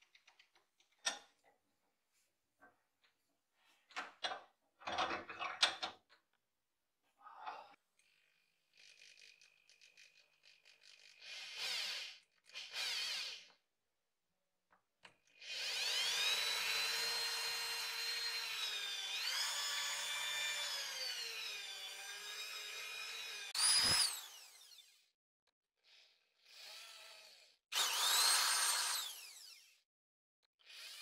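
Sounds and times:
electric drill boring into wood: 8.7s - 13.6s, 15.3s - 25.1s, 25.9s - 29.8s, 30.6s - 31.0s.

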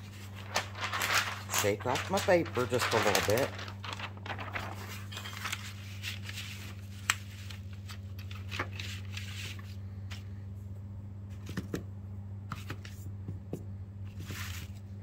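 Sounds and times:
paper rustling: 0.0s - 10.3s, 14.1s - 14.9s
low electrical hum: 0.0s - 15.0s.

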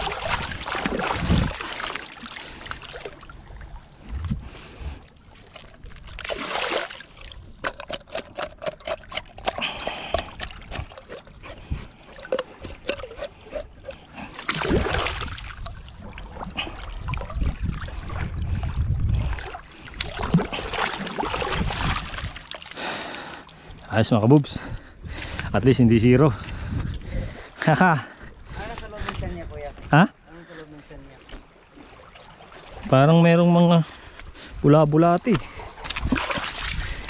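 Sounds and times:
water splashing and trickling: 0.0s - 25.2s, 26.3s - 37.0s.

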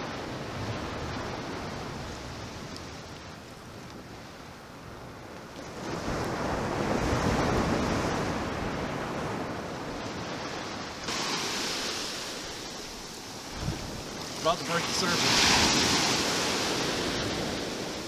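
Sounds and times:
surf breaking on sandy beach: 5.6s - 18.0s.

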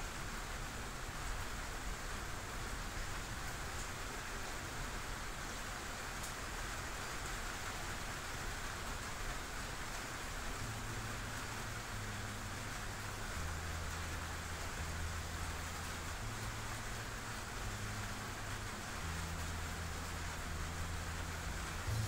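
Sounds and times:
steady hissing noise: 0.0s - 22.0s
low hum: 17.7s - 22.0s.

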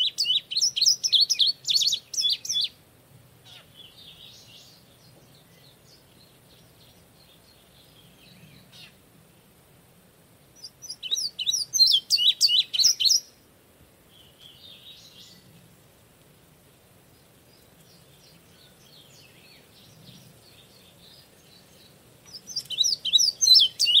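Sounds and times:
faint bird song: 0.0s - 24.0s
bird singing repeated high notes: 10.6s - 13.3s, 22.4s - 24.0s.

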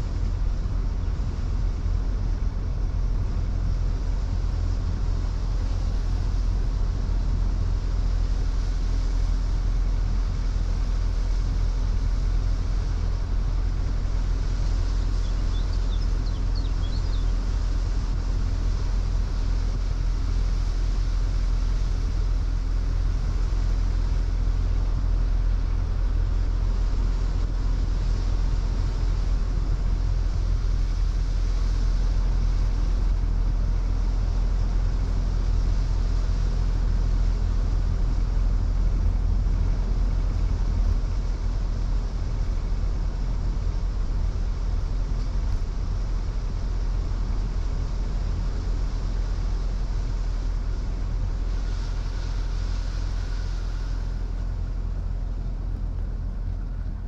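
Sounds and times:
engine and road rumble: 0.0s - 57.0s
tyre hiss on wet road: 17.6s - 56.8s.

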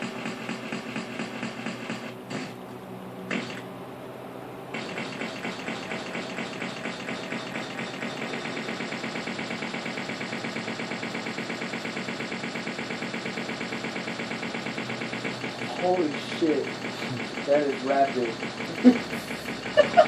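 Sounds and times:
looping fart sound effect: 3.3s - 3.7s, 4.8s - 20.0s.

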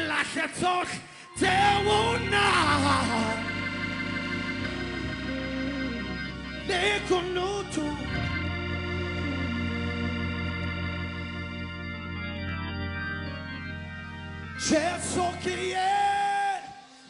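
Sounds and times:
person singing: 0.0s - 3.7s, 4.6s - 10.0s, 14.6s - 17.0s
sustained organ chords: 0.0s - 17.0s
low bass note: 1.4s - 14.6s.

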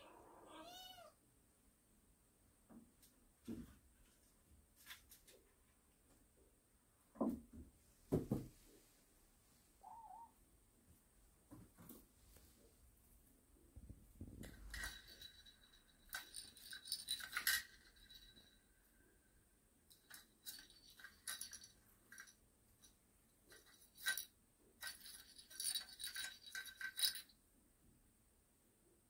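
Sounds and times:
bell in toy ball jingling: 14.4s - 18.6s, 19.9s - 22.4s, 23.5s - 27.3s.

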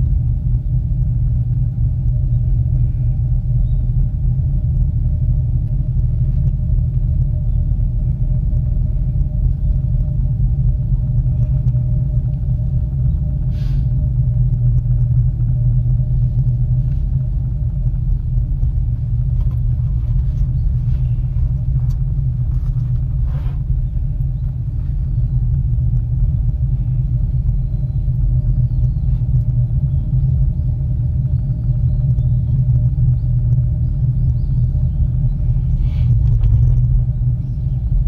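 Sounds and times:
cable car rumble and hum: 0.0s - 38.0s
faint clicks and creaks: 5.6s - 29.6s, 36.0s - 37.3s.

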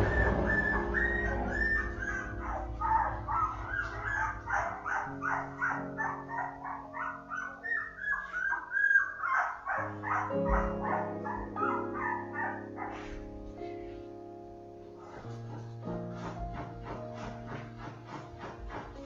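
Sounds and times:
background music with sustained chords: 0.0s - 8.1s, 9.8s - 18.0s
puppies squeaking and whimpering: 0.0s - 13.3s.

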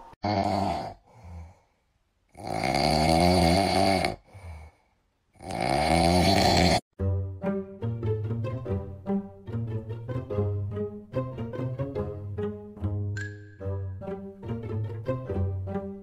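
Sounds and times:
dog snoring: 2.4s - 4.2s, 5.4s - 6.8s.

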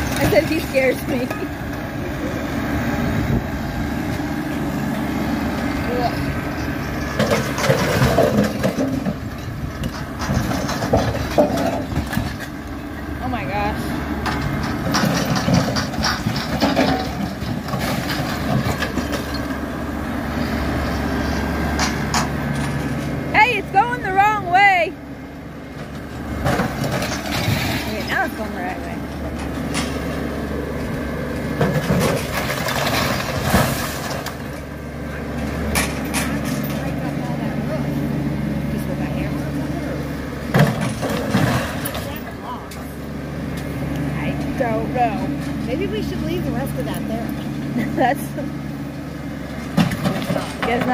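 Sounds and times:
tractor engine under load: 0.0s - 50.9s
bricks and debris clattering: 6.9s - 12.5s, 14.2s - 19.6s, 26.4s - 28.8s, 31.6s - 34.6s, 40.5s - 42.5s.

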